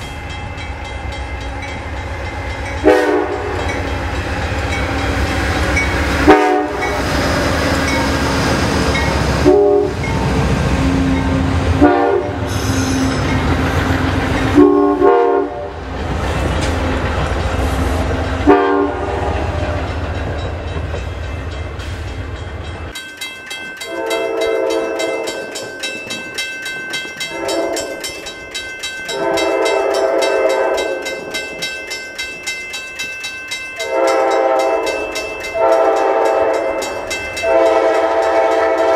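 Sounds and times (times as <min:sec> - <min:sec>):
crossing bell ringing rapidly: 0:00.0 - 0:14.9, 0:16.4 - 0:38.9
train passing at speed: 0:00.0 - 0:38.9
distant train horn blasts: 0:02.8 - 0:03.9, 0:06.1 - 0:07.4, 0:09.3 - 0:13.4, 0:14.5 - 0:15.8, 0:17.8 - 0:20.0, 0:23.8 - 0:25.4, 0:27.2 - 0:28.0, 0:29.1 - 0:31.2, 0:33.8 - 0:38.9.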